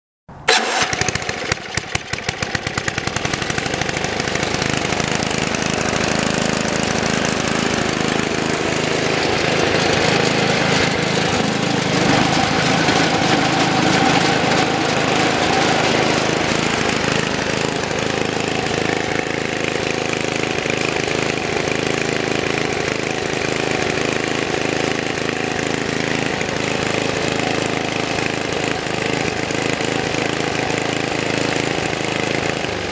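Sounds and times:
snowblower auger turning: 0.5s - 32.9s
snowblower engine running: 0.5s - 32.9s.

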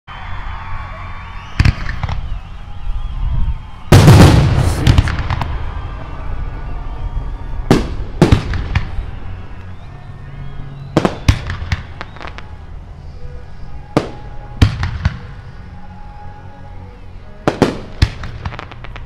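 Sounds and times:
fireworks bangs: 1.4s - 2.4s, 3.8s - 9.5s, 10.9s - 12.6s, 13.9s - 15.5s, 17.4s - 19.0s
fireworks crackle: 3.7s - 9.8s, 11.0s - 15.4s, 17.3s - 19.0s.

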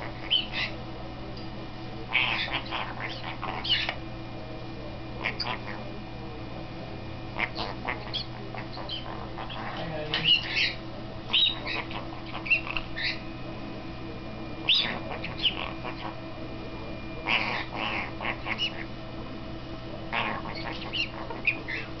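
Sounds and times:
parrot squawking and chattering: 0.0s - 0.8s, 2.1s - 4.0s, 5.2s - 5.8s, 7.4s - 13.2s, 14.6s - 16.2s, 17.2s - 18.9s, 20.1s - 22.0s
steady low hum: 0.0s - 22.0s.

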